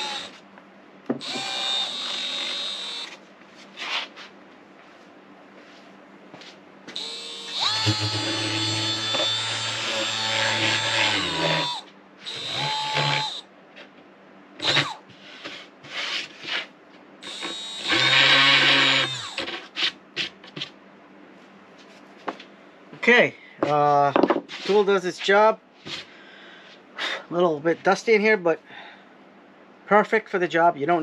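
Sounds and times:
orbital sander running: 0:00.0 - 0:00.4, 0:01.2 - 0:03.2, 0:06.9 - 0:13.4, 0:14.6 - 0:15.0, 0:17.2 - 0:19.5.

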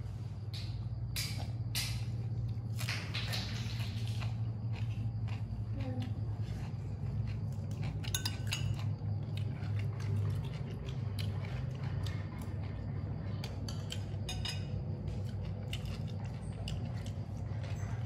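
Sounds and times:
steady low hum: 0:00.0 - 0:18.0
metal spoon clinking on plate: 0:08.1 - 0:08.8.

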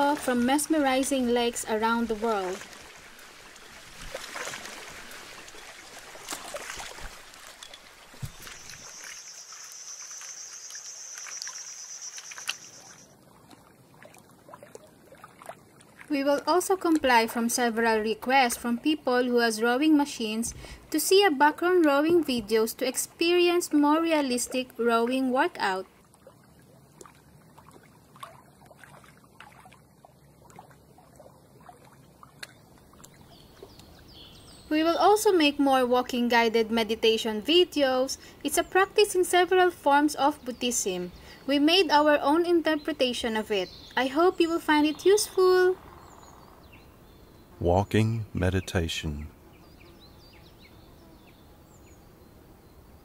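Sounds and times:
water splashing against boat: 0:00.0 - 0:09.2, 0:12.2 - 0:16.2
small splashes and drips: 0:02.1 - 0:17.2, 0:25.9 - 0:34.2.

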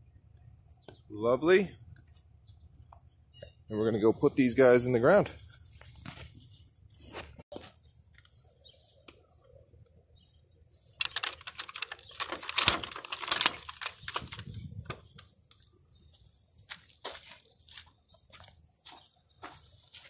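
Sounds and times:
metal gate latch rattling: 0:11.0 - 0:15.3.

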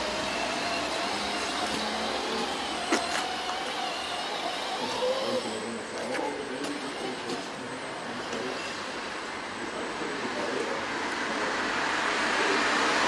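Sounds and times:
model tractor motor whining: 0:00.0 - 0:09.3.

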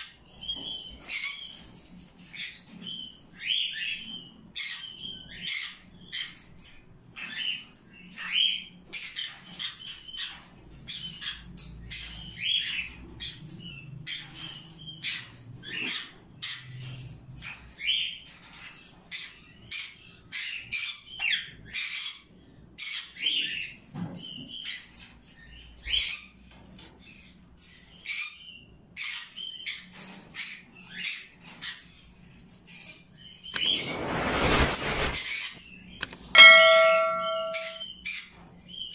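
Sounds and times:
loud ringing sound: 0:33.6 - 0:35.2, 0:36.0 - 0:37.8.

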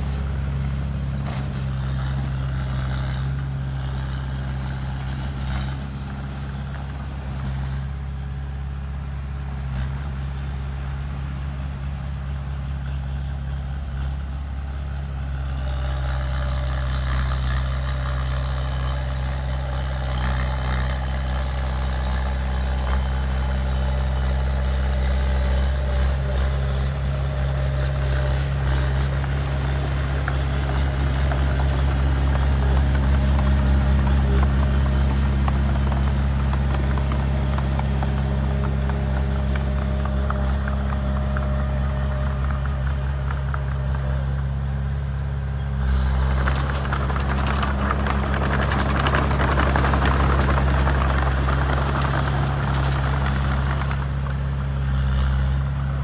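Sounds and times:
bulldozer diesel engine running: 0:00.0 - 0:56.0
steel tracks clattering and squealing: 0:46.1 - 0:55.4.

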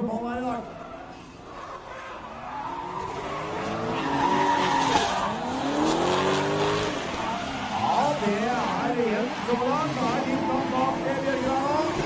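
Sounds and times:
car engines revving: 0:00.1 - 0:12.0
tyres screeching: 0:00.9 - 0:08.8.

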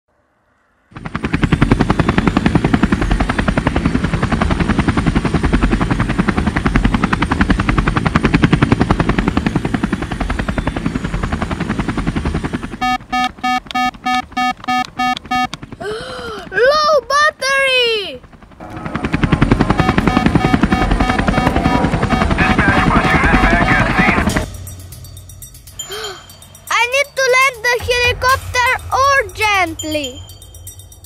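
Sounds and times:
helicopter rotors chopping: 0:00.9 - 0:31.0
electronic beeps: 0:12.8 - 0:15.5, 0:19.7 - 0:24.4.

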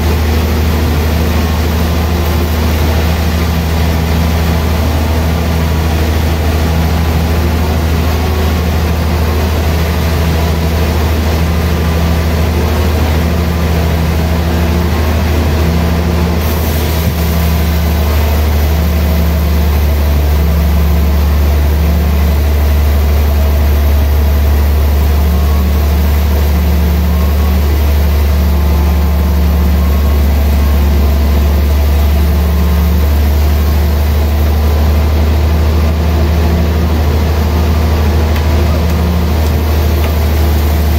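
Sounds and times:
band saw cutting wood: 0:37.8 - 0:40.9.

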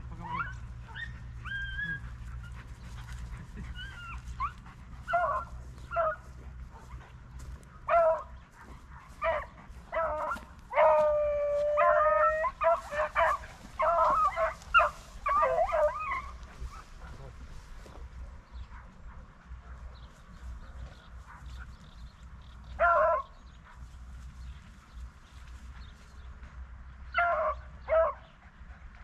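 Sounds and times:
hounds baying and yelping: 0:00.0 - 0:20.1, 0:22.7 - 0:23.8, 0:27.0 - 0:29.0.

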